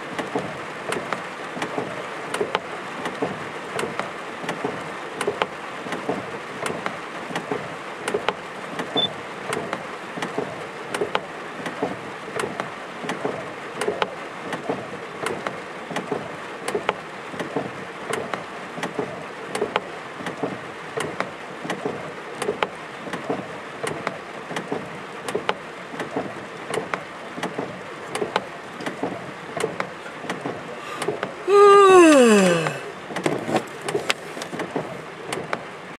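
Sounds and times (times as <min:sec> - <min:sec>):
raindrops tapping hard surface: 0:00.1 - 0:31.4
rain hissing: 0:27.2 - 0:35.4.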